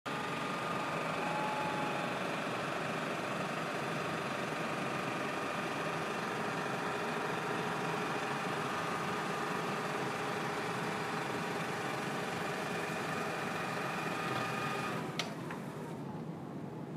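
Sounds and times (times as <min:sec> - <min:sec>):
robot vacuum motor hum: 0:03.8 - 0:15.8.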